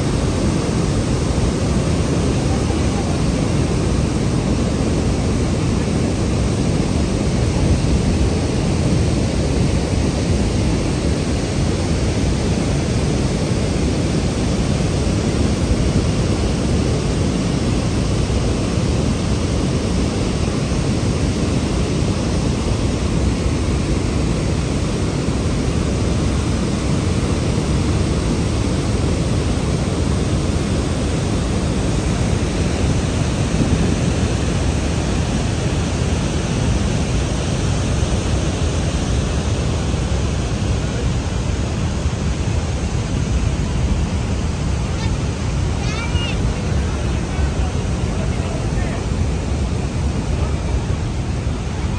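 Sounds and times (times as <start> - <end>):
water rushing through spillway: 0.0 - 51.9.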